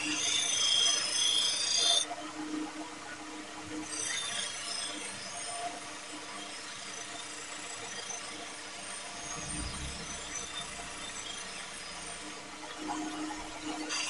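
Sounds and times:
motor humming: 0:09.3 - 0:11.2.

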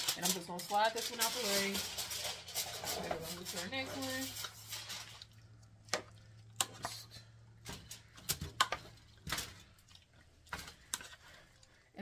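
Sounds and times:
spatula scraping a metal pot: 0:00.0 - 0:05.3, 0:10.5 - 0:11.5.

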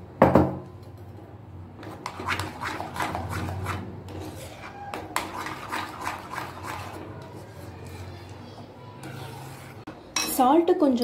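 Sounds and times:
spoon scraping a metal pan: 0:01.8 - 0:08.3, 0:09.0 - 0:10.4.

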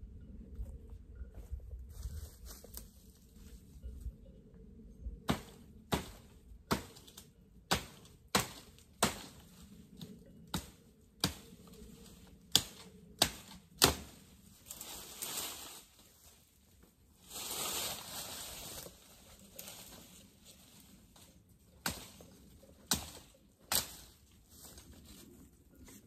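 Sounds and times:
leaves rustling: 0:01.4 - 0:04.0, 0:11.3 - 0:26.0
branch being chopped: 0:05.3 - 0:09.4, 0:12.5 - 0:14.2, 0:21.8 - 0:24.1.

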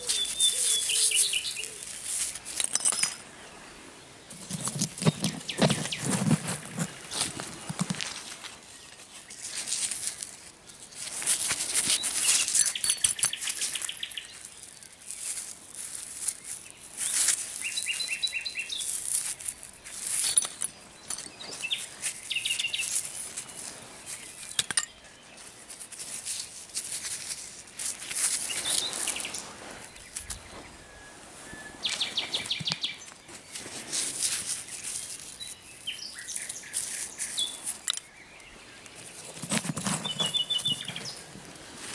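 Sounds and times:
nightingale singing: 0:00.0 - 0:02.4, 0:03.0 - 0:07.6, 0:11.8 - 0:25.6, 0:28.2 - 0:33.6, 0:34.5 - 0:41.7
soil rustling in gloved hands: 0:00.0 - 0:02.8, 0:03.6 - 0:41.9.

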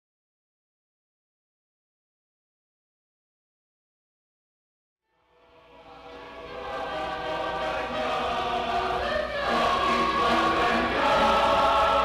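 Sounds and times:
choir singing: 0:05.3 - 0:12.0.

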